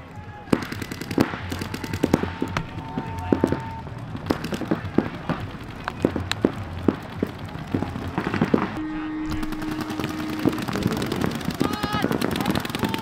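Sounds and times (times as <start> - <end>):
paintball guns popping: 0.4 - 8.8, 9.4 - 13.0
steady low tone: 4.8 - 12.4.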